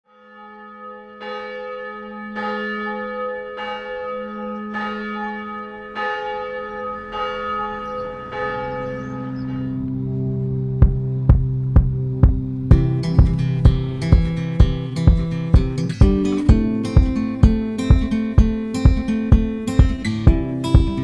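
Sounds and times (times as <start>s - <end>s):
church bell tolling: 0.1s - 12.8s
steady low hum: 9.8s - 16.2s.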